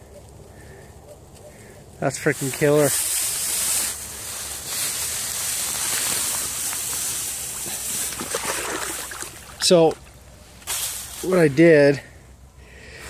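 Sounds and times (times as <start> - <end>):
dry grass rustling: 0.0 - 13.0.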